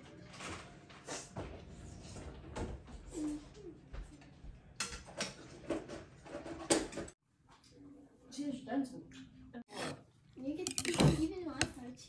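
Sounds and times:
utensils clinking against bowls: 10.5s - 11.8s.

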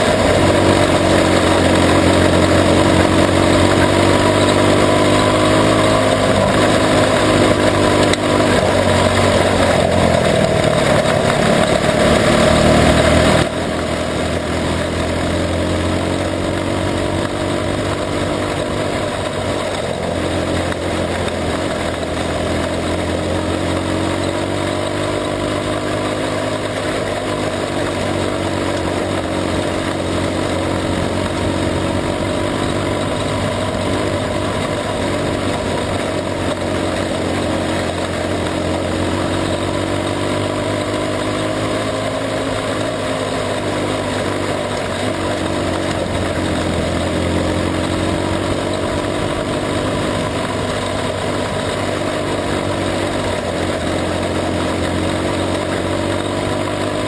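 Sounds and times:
race car engine under load: 0.0s - 57.0s.

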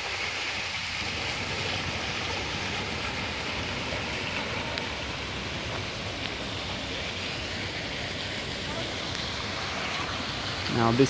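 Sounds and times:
fountain water splashing: 0.0s - 11.0s.

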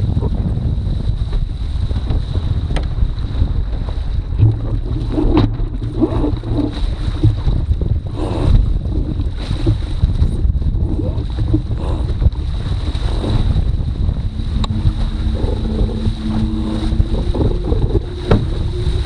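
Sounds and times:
water splashing against hull: 0.0s - 19.0s
wind buffeting microphone: 0.0s - 19.0s
faint high whine: 13.1s - 19.0s.

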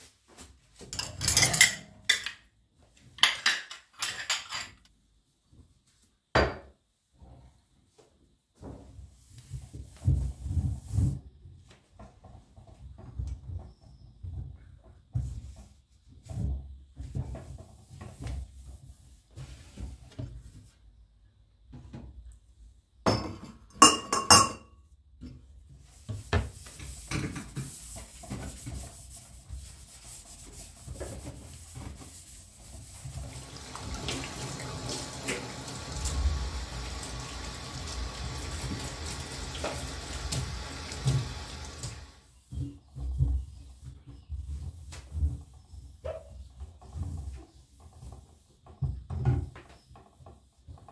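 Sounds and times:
dishes clinking: 0.9s - 2.4s, 3.2s - 4.8s, 23.1s - 24.7s
tap running into a sink: 33.1s - 42.2s.

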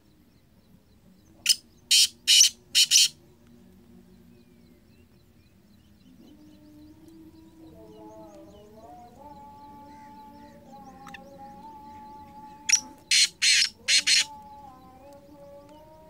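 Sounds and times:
harsh grating bird call: 1.5s - 3.1s, 12.6s - 14.3s.

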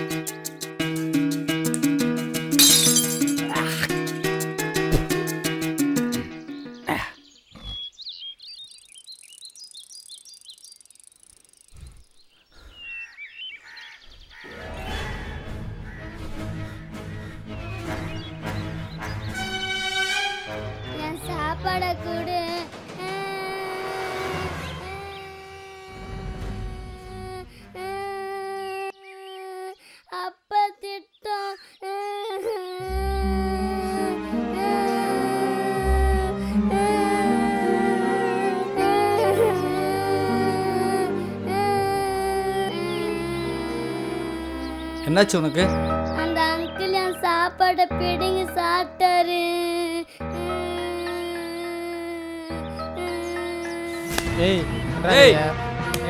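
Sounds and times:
small birds chirping: 5.8s - 14.5s, 15.8s - 19.5s, 28.3s - 33.0s, 39.0s - 48.4s, 50.2s - 55.0s
high insect buzz: 8.8s - 12.3s, 23.5s - 28.3s
woman singing long held notes: 21.2s - 29.8s, 31.4s - 45.1s, 49.4s - 54.2s
low instrumental accompaniment: 32.8s - 46.8s, 52.6s - 56.0s.

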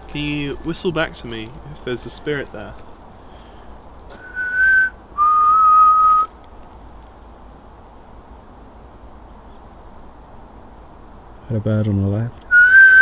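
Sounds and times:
faint steady hiss: 0.0s - 13.0s
person whistling a note: 4.2s - 6.3s, 12.5s - 13.0s.

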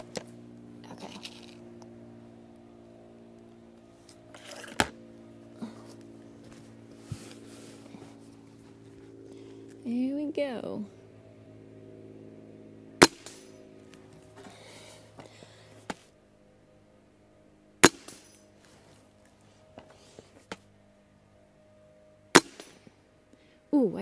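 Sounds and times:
air rifle shots: 13.0s - 13.6s, 17.8s - 18.4s, 22.4s - 22.8s.

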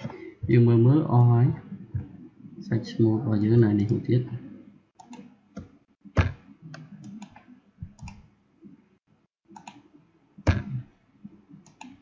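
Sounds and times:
computer mouse clicking: 5.0s - 8.3s, 9.5s - 9.9s, 11.5s - 12.0s.

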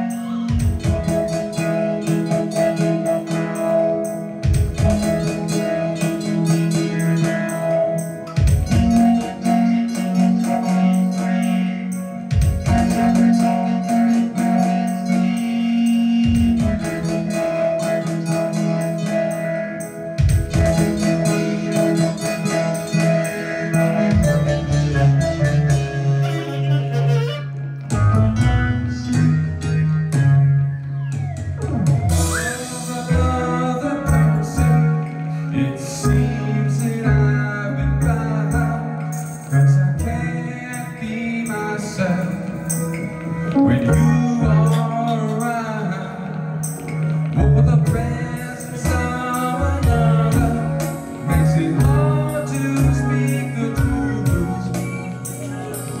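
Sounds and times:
sung vocals: 0.0s - 26.8s, 27.8s - 56.0s
guitar chords ringing: 0.0s - 56.0s
steady bass line: 0.0s - 56.0s
percussion hits: 0.5s - 15.2s, 16.2s - 25.8s.

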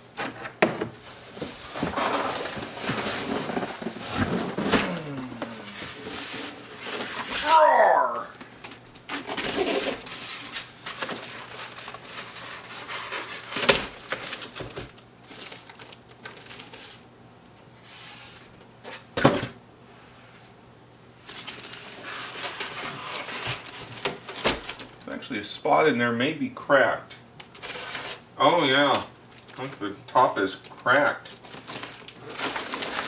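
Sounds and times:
plastic bag rustling: 1.0s - 7.7s, 8.7s - 17.1s, 21.2s - 25.0s, 27.5s - 33.0s
styrofoam packing pulled away: 1.4s - 7.6s, 31.4s - 33.0s.

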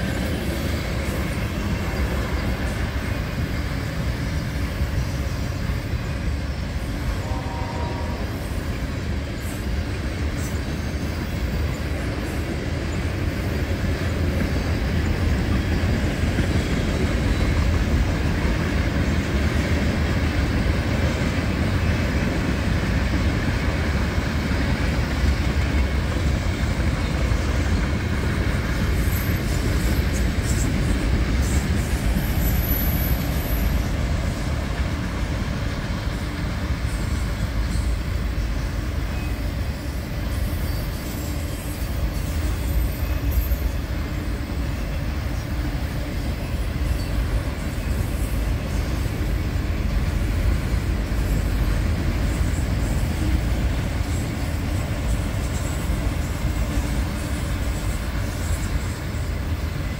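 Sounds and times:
steel wheels rumbling on rail: 0.0s - 59.9s
high wheel squeal: 28.8s - 34.4s, 36.9s - 44.0s.

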